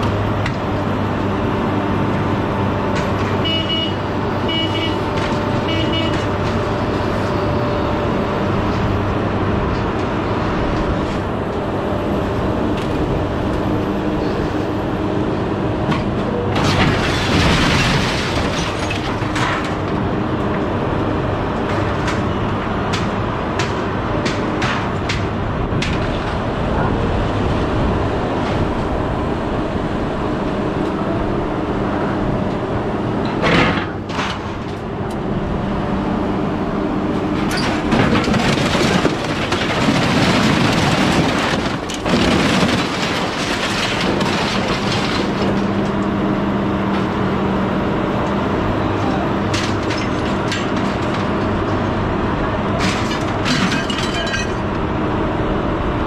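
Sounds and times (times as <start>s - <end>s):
scrap metal clanking and scraping: 15.9s - 20.0s, 33.2s - 34.9s, 37.2s - 46.0s, 49.4s - 54.8s.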